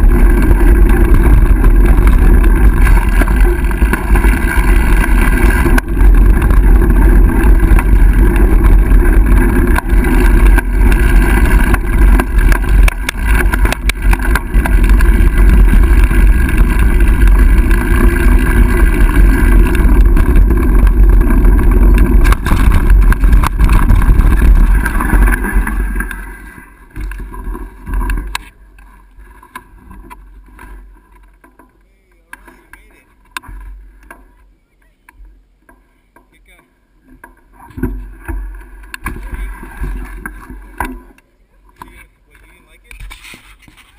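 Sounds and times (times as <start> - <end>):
wind buffeting microphone: 0.0 - 27.2
bike tyres rattling on boards: 0.0 - 43.9.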